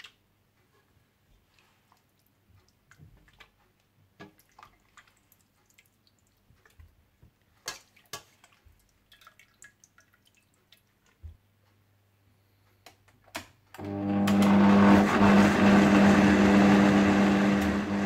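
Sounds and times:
wet drips: 0:01.6 - 0:11.4.

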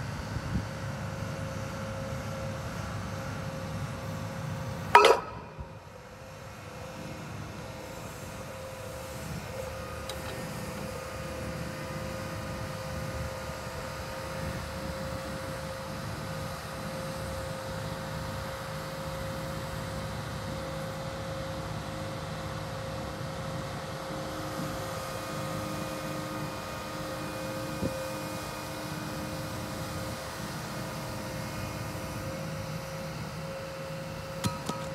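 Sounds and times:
constant machine whine: 0:00.0 - 0:34.9
machine engine and hydraulics humming: 0:00.0 - 0:34.9
steel plate clanking on ground: 0:05.0 - 0:05.8, 0:34.4 - 0:34.9.

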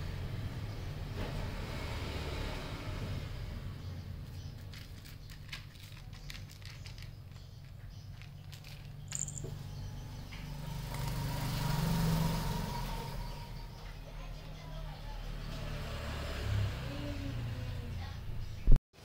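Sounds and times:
cat crunching dry kibble: 0:04.6 - 0:09.1.

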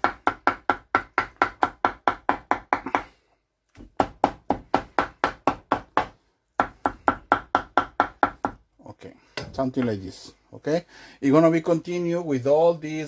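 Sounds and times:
knife chopping on wooden board: 0:00.0 - 0:08.6.

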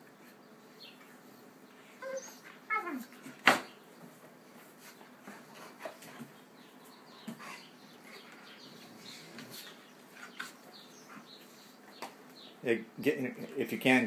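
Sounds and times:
dogs whining yelps: 0:02.0 - 0:03.2.

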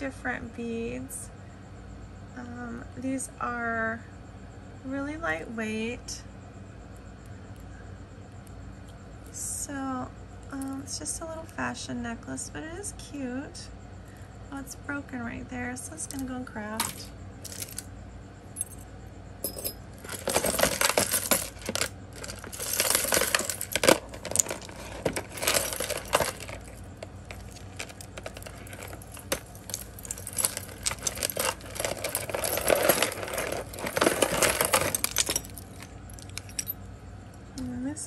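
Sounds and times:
jewelry clinking and jangling: 0:16.0 - 0:17.9, 0:18.6 - 0:36.8.

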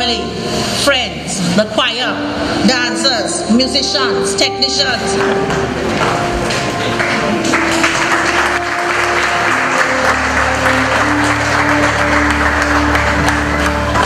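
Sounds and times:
crowd applauding: 0:05.2 - 0:14.0.

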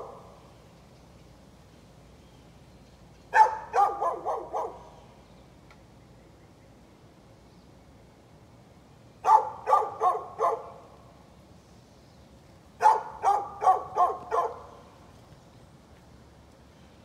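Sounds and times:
dog barking: 0:03.3 - 0:05.0, 0:09.2 - 0:10.8, 0:12.8 - 0:14.8.

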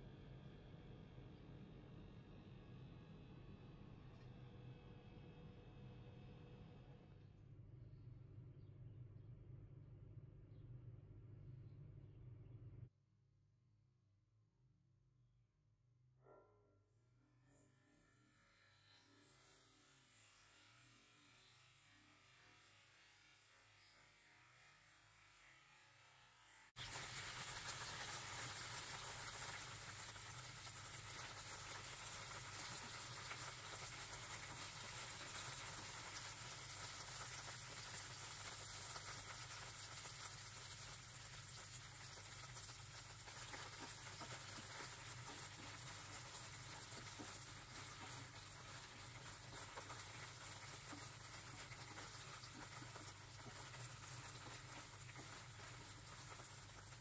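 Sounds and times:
okra sizzling in oil: 0:26.4 - 0:57.0.

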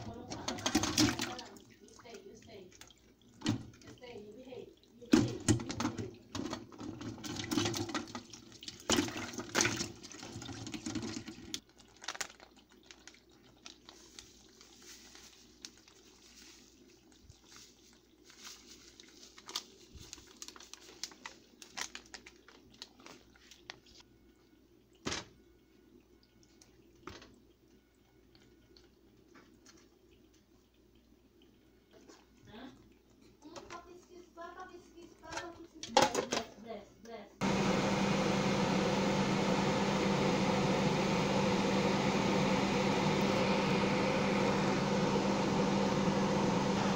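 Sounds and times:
tap water splashing into pot: 0:00.1 - 0:04.2, 0:04.8 - 0:12.4.

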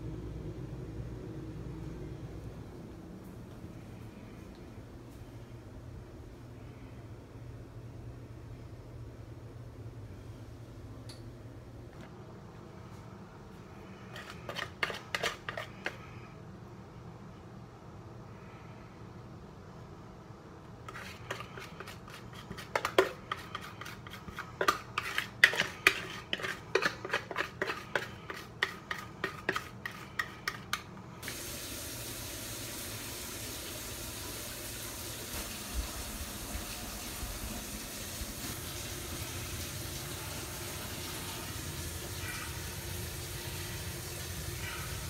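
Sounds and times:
utensil scraping mixing bowl: 0:13.8 - 0:16.2, 0:20.8 - 0:31.0.

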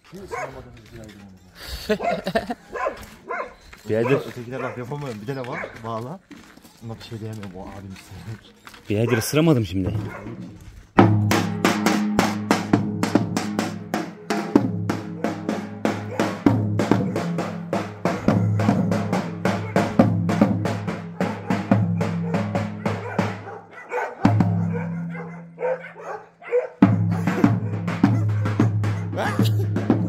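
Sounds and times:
drum beaten in fast rhythm: 0:11.0 - 0:23.6, 0:24.2 - 0:25.2, 0:26.8 - 0:30.0.

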